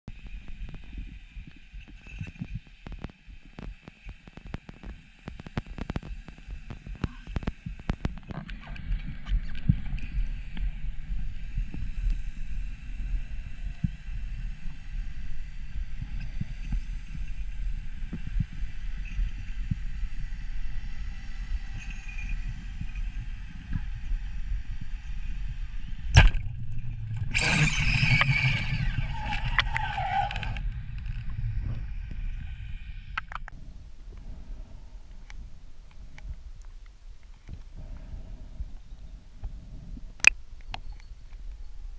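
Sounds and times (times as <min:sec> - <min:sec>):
low underwater rumble: 0:06.0 - 0:41.9
rushing whirring noise: 0:21.0 - 0:34.1
speargun firing crack: 0:26.1 - 0:26.5.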